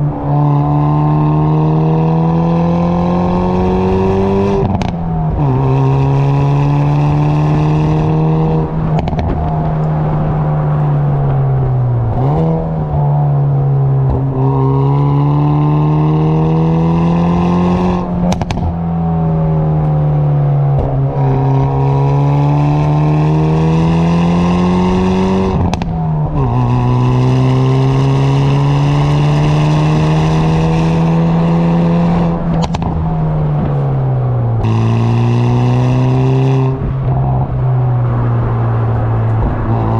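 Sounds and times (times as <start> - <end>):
car exhaust engine note: 0.0 - 39.9
exhaust cracks: 8.7 - 14.4, 18.1 - 21.8, 32.3 - 35.2.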